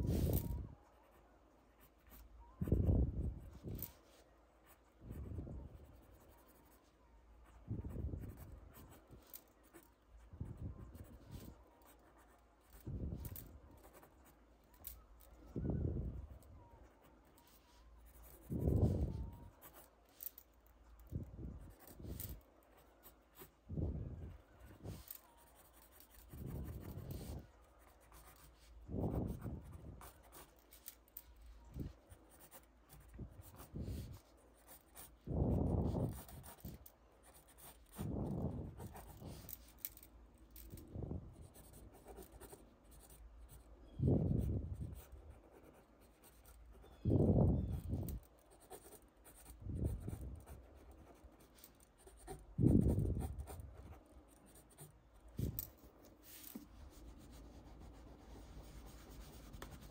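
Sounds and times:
pencil drawing on paper: 3.4 - 15.0, 24.2 - 30.8, 31.6 - 39.8, 41.3 - 47.0, 47.6 - 54.9, 56.1 - 59.9.

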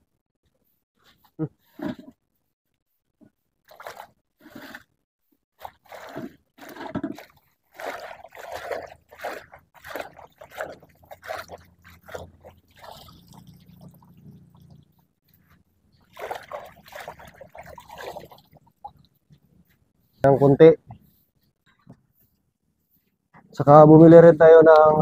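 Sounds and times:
water splashing in basin: 3.6 - 4.2, 5.6 - 19.2.

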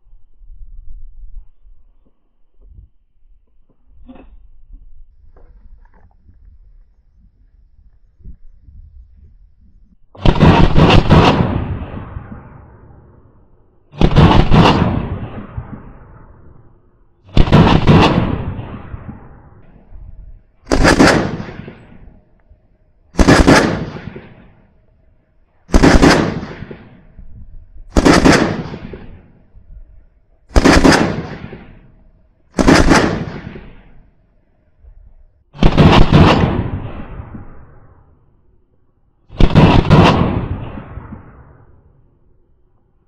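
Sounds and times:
rifle shots echoing: 10.2 - 13.3, 13.9 - 16.5, 17.2 - 19.9, 20.6 - 22.3, 23.1 - 24.8, 25.7 - 29.5, 30.5 - 34.1, 35.6 - 38.0, 39.3 - 42.0.

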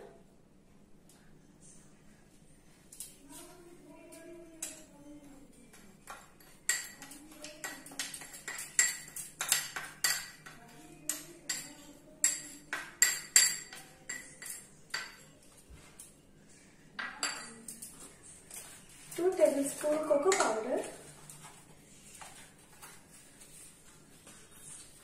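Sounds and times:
spoon clinking against bowl: 6.0 - 15.4, 17.0 - 17.9.

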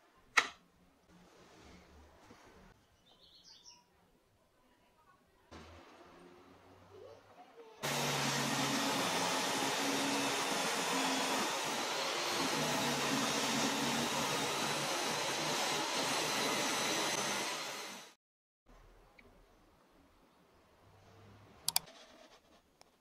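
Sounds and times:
table saw cutting wood: 7.8 - 18.2.

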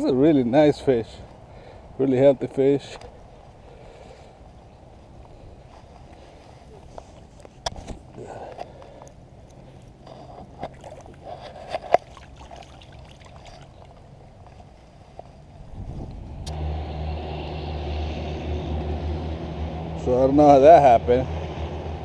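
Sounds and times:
vehicle engine humming: 0.0 - 12.1, 12.9 - 22.0
fish splashing in shallow water: 9.7 - 14.5.

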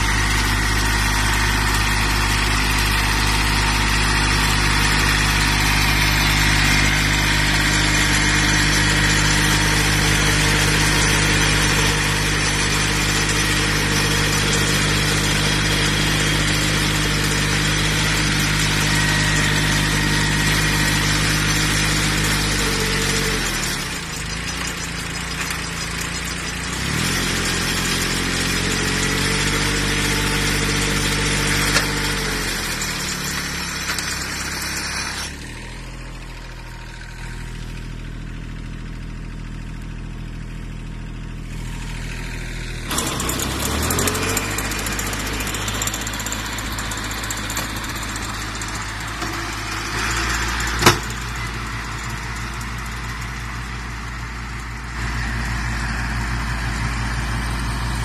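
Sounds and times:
baler rollers working: 0.0 - 35.4, 42.7 - 55.9
tractor diesel engine running: 0.0 - 58.0.

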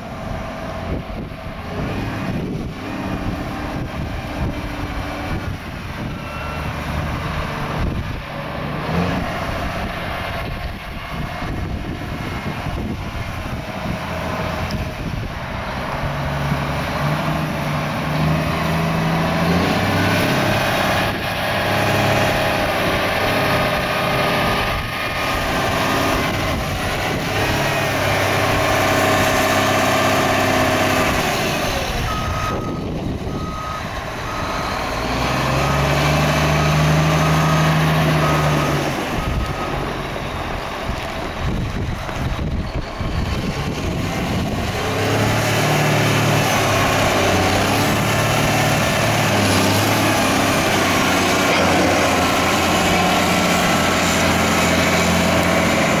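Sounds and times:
diesel engine revving: 0.0 - 56.0
reversing alarm beeping: 6.0 - 7.1, 27.7 - 41.5.

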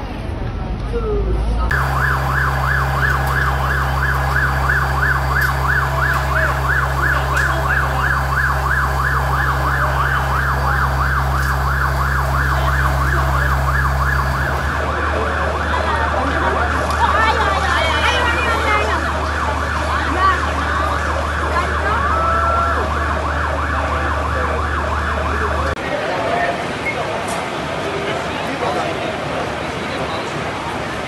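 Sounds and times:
low engine hum: 1.5 - 15.3
siren yelping: 1.7 - 25.7
wavering siren: 1.7 - 25.8.

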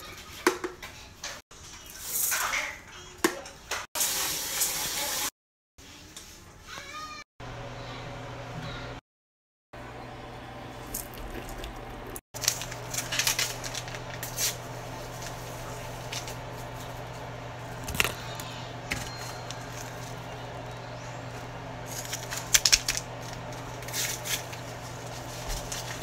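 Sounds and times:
steady low hum: 9.8 - 26.0.

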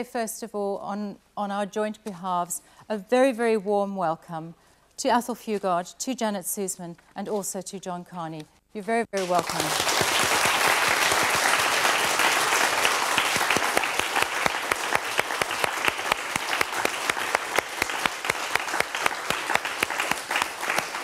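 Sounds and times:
audience applauding: 9.2 - 21.0.

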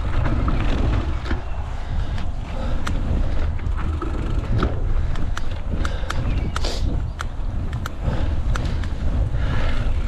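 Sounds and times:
bike clicks and rattles: 0.0 - 10.0
wind rumble on microphone: 0.0 - 10.0.

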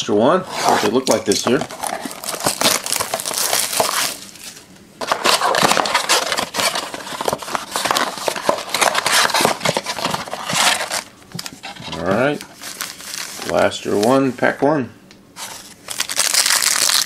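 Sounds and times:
cardboard scraping and rustling: 0.5 - 14.2
cardboard box being torn open: 1.6 - 4.2.

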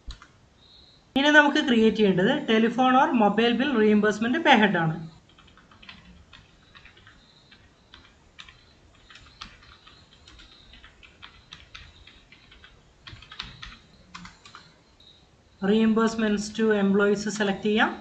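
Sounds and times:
computer keyboard typing: 0.0 - 0.4, 5.2 - 14.8.

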